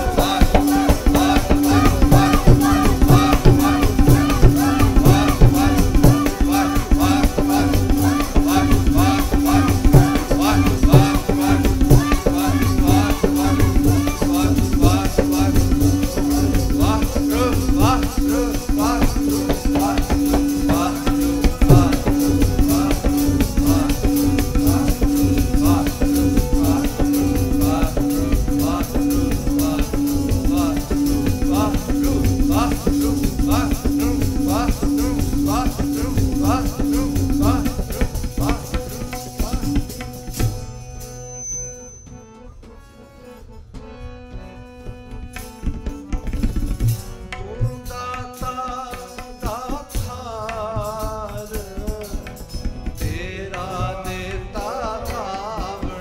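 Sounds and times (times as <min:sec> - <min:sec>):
fast tabla strokes: 0:00.0 - 0:41.6, 0:44.5 - 0:56.0
held drone note: 0:00.0 - 0:43.6.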